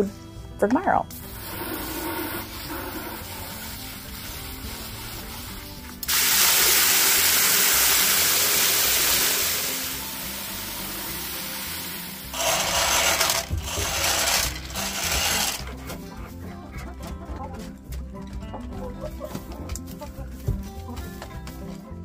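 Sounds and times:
hose water hissing into bucket: 1.1s - 15.7s
feed pellets rattling into metal feeder: 12.4s - 15.6s.

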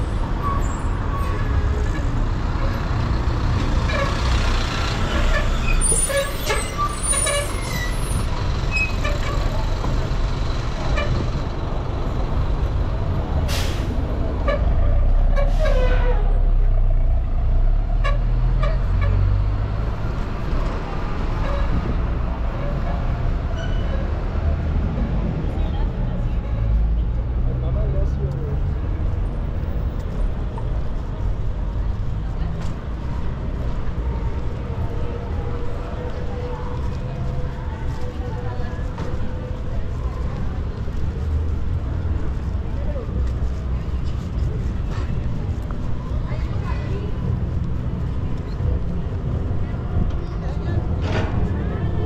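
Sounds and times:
bus engine passing: 0.0s - 52.0s
city traffic rumble: 0.0s - 52.0s
air brakes hissing: 13.5s - 14.0s.

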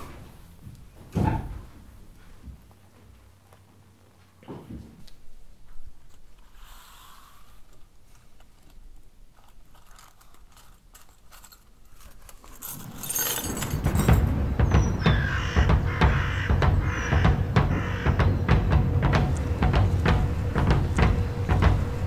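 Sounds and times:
light metallic clinks: 9.4s - 14.5s
low rumble with rapid clicks: 13.4s - 22.0s.

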